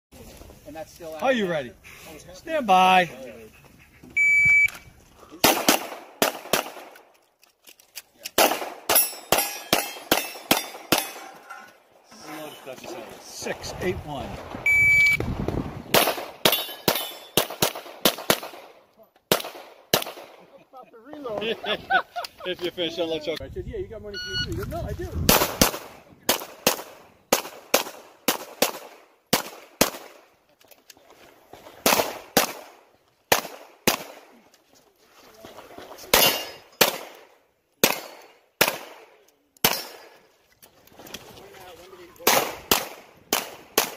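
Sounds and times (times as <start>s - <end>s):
shot timer beep: 4.2s - 4.8s, 14.7s - 15.2s
pistol shots: 5.4s - 7.0s, 8.3s - 11.2s, 15.9s - 20.4s, 25.3s - 30.2s, 31.8s - 34.3s, 36.1s - 40.2s, 42.2s - 43.9s.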